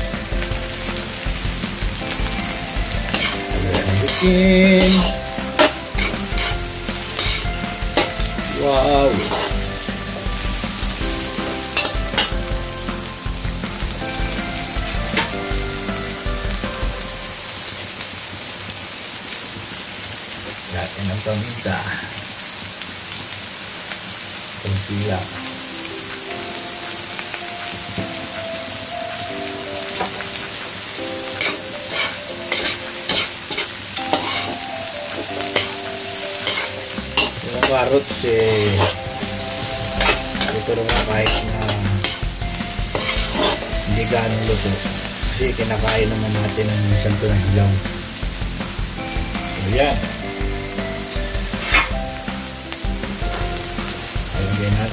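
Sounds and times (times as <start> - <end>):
vegetables sizzling in oil: 0.0 - 54.9
metal ladle scraping a wok: 2.4 - 13.1, 31.4 - 34.6, 36.4 - 43.9, 51.6 - 52.0.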